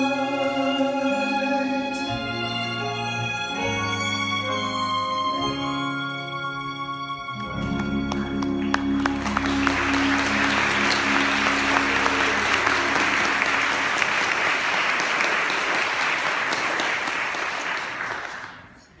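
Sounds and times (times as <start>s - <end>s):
held notes of song: 0.0s - 14.5s
audience applauding: 7.4s - 19.0s.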